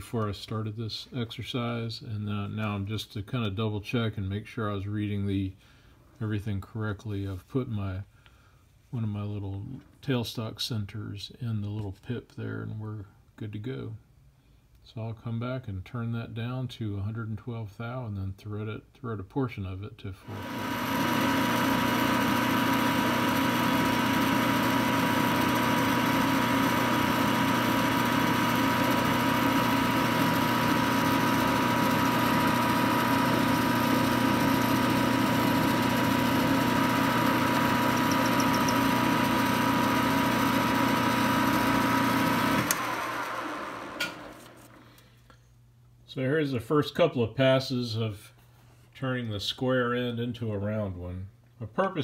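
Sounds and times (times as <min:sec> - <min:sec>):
metal lathe whining and cutting: 0:20.3 - 0:44.6
lathe switch click: 0:42.5 - 0:43.0.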